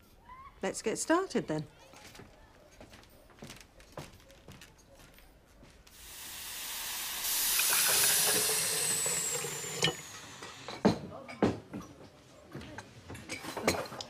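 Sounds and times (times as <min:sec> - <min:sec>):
hot water gushing into a jug: 0:05.9 - 0:10.9
steam hissing: 0:05.9 - 0:11.0.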